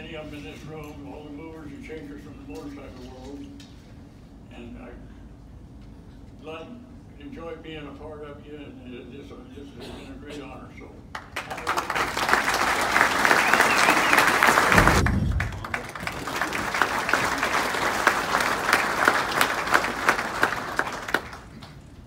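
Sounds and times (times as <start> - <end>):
audience applauding: 11.2 - 21.9
low thump: 14.7 - 15.7.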